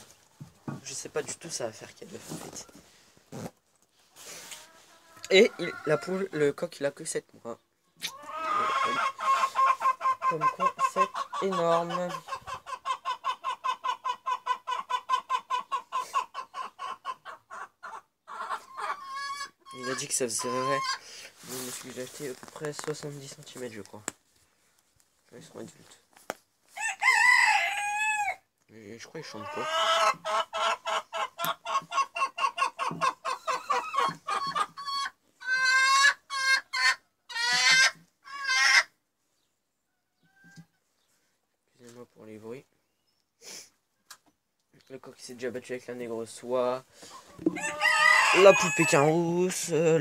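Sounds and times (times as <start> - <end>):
chicken clucking: 4.2 - 6.5, 7.5 - 22.4, 29.0 - 42.6, 46.4 - 50.0.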